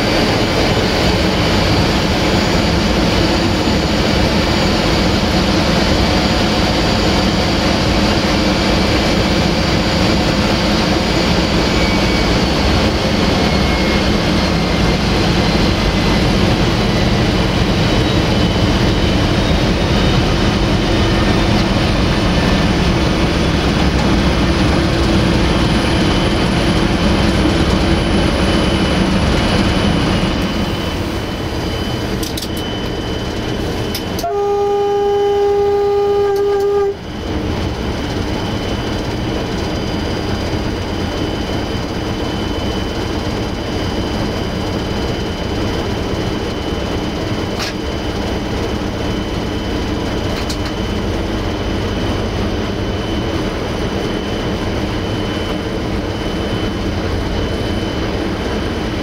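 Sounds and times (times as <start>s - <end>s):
diesel engine running: 0.0s - 59.0s
train track noise: 0.0s - 59.0s
locomotive horn blast: 34.0s - 37.1s.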